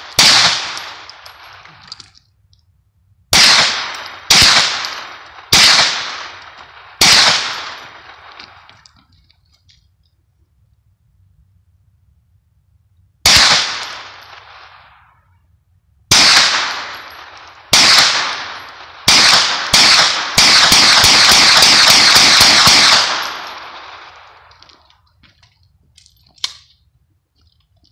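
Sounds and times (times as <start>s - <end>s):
carbine gunshots: 0.0s - 2.0s, 3.3s - 8.9s, 13.2s - 14.9s, 16.1s - 24.8s.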